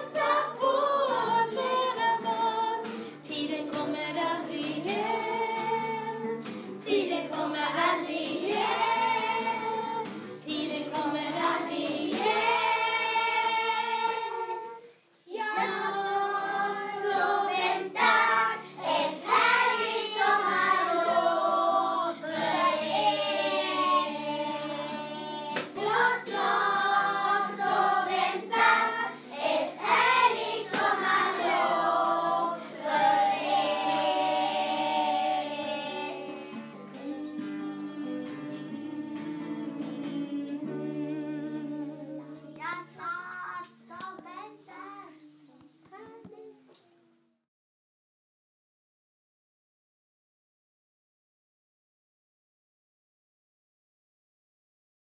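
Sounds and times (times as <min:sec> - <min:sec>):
children singing as a choir: 0:00.0 - 0:42.6.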